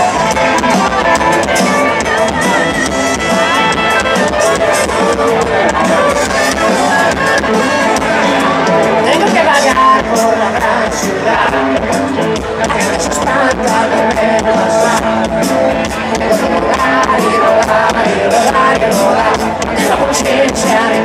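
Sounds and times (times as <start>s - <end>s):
drums: 0.0s - 21.0s
electric guitars: 0.0s - 21.0s
live rock band playing: 0.0s - 21.0s
person singing: 0.0s - 21.0s.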